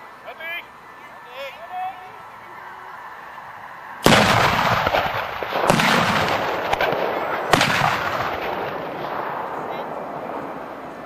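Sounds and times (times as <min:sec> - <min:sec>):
cannon shots booming: 0:04.0 - 0:10.0.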